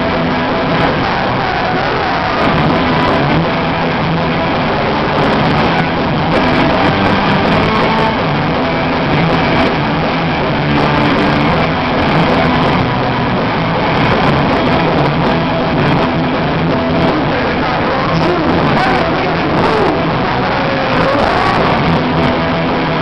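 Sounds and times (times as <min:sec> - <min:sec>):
punk rock band playing live: 0:00.0 - 0:23.0.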